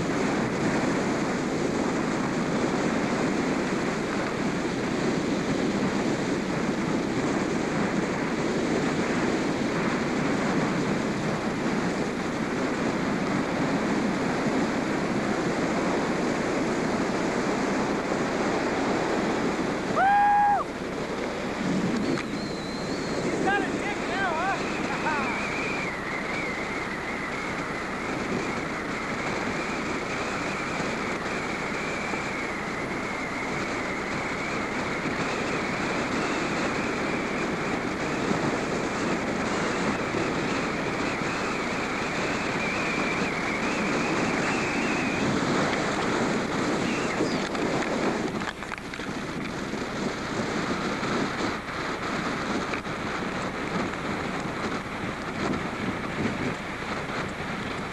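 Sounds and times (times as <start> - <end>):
wind buffeting microphone: 0.0 - 57.9
faint wavering high whine: 22.0 - 27.2.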